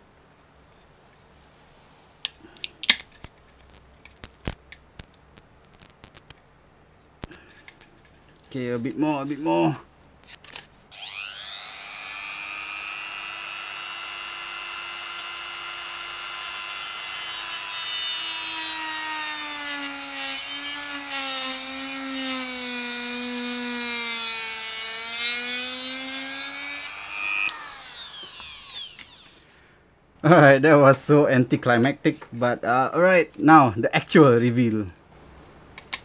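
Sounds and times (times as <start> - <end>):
rotary tool whining: 10.4 - 29.6
rotary tool grinding plastic: 25.1 - 29.4.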